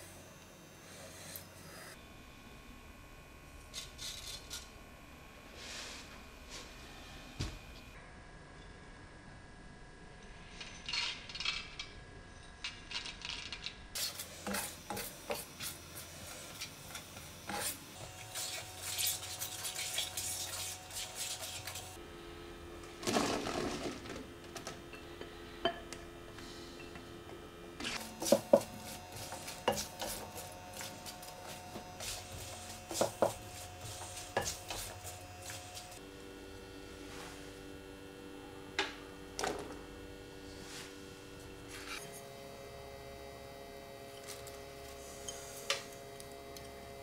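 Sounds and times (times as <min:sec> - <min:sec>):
spoon stirring and scraping pan: 0:14.0 - 0:20.6, 0:27.9 - 0:36.0.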